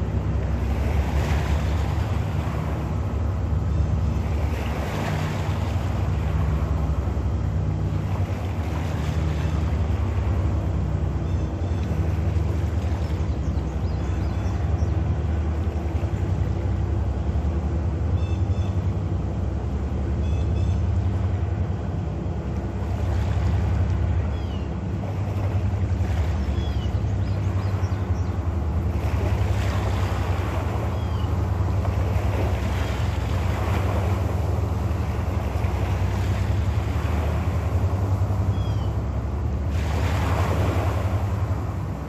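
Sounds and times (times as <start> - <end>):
boat diesel engine drone: 0.0 - 42.0.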